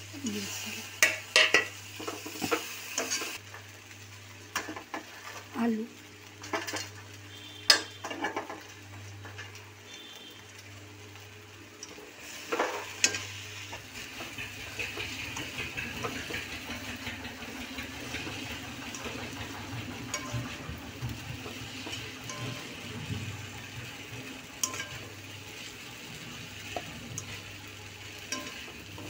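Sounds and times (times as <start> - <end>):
food sizzling in oil: 0.0 - 29.0
spatula scraping a pan: 20.1 - 27.5
spatula clinking on pan: 24.6 - 25.0, 28.3 - 28.7.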